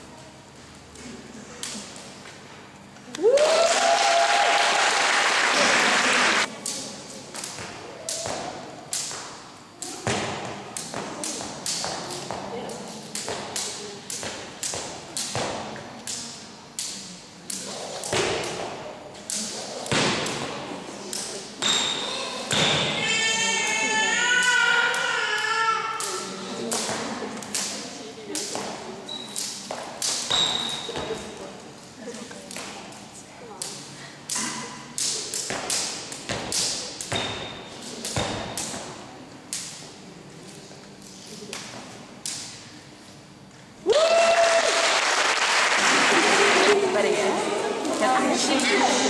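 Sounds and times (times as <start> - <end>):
jump rope slapping hard floor: 6.5 - 23.0, 24.4 - 31.4, 33.6 - 39.8
sneaker squeaks: 21.6 - 23.5, 29.0 - 29.6, 30.2 - 31.4, 37.1 - 38.8.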